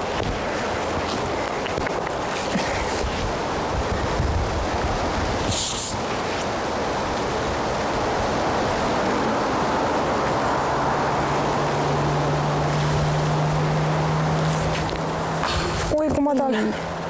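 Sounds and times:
wind blowing across microphone: 0.0s - 16.4s.

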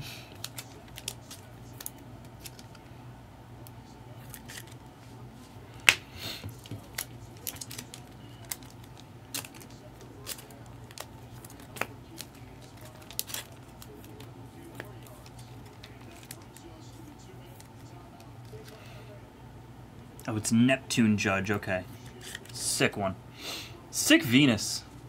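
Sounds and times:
faint steady hum: 0.0s - 25.0s
cards crinkling and clicking: 0.3s - 2.9s, 3.6s - 4.8s, 5.8s - 18.8s, 22.0s - 22.7s.

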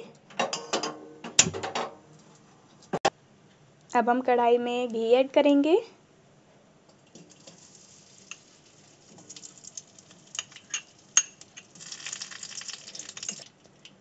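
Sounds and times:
ghee sizzling and crackling: 7.0s - 14.0s.

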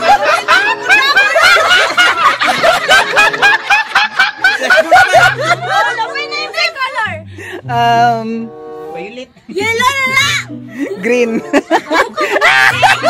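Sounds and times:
group of people laughing: 0.0s - 6.8s, 10.8s - 13.0s.

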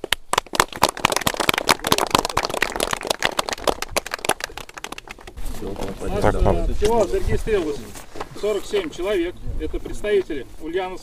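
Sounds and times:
people clapping: 0.0s - 5.4s.

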